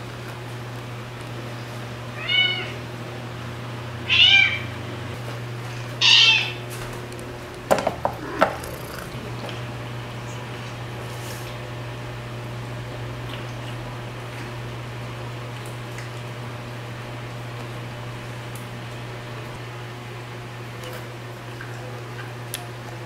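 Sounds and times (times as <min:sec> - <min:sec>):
cat meowing: 0:02.2 - 0:02.8, 0:04.1 - 0:04.7, 0:08.2 - 0:09.3.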